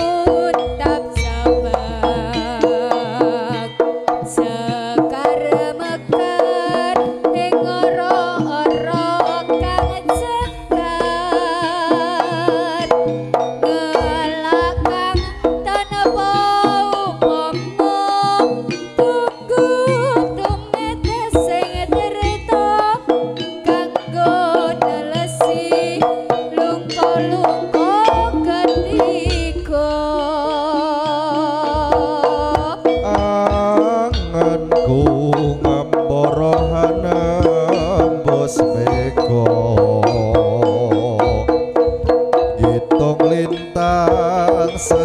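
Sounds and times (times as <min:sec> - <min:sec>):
barrel drums beating: 0:00.0 - 0:45.0
wavering vibrato melody: 0:00.0 - 0:45.0
deep low booms: 0:00.7 - 0:02.7.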